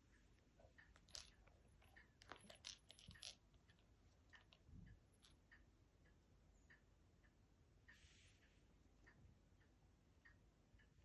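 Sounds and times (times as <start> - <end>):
plastic ball toy clicks and rattles: 0.9 - 4.6.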